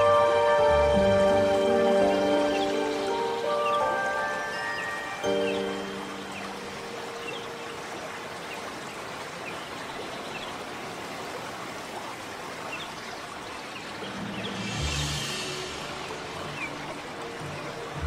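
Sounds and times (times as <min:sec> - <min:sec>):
music: 0:00.0 - 0:07.7, 0:14.1 - 0:18.0
rushing water noise: 0:00.0 - 0:18.0.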